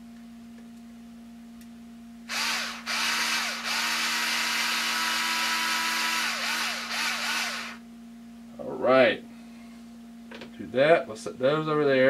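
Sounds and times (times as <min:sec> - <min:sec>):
electric screwdriver whining: 0:02.3 - 0:07.8.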